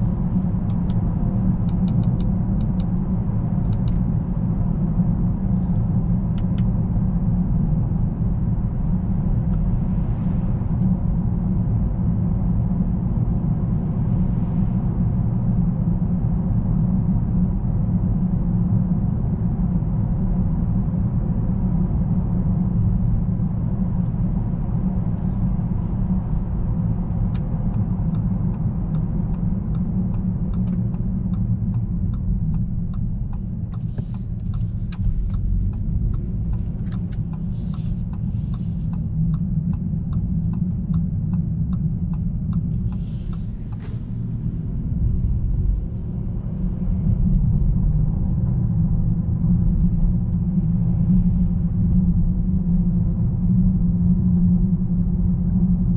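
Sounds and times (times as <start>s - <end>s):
car engine and road rumble: 0.0s - 55.9s
turn signal ticking: 0.4s - 3.0s, 27.0s - 44.1s.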